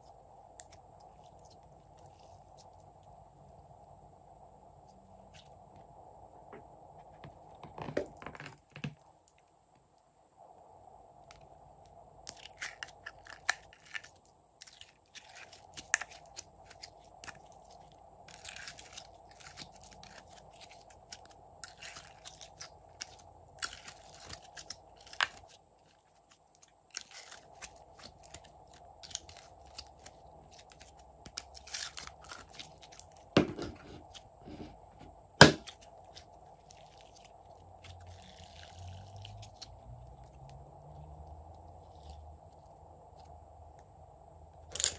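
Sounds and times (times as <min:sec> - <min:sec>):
slime crackling and popping: 0:12.3 - 0:33.4.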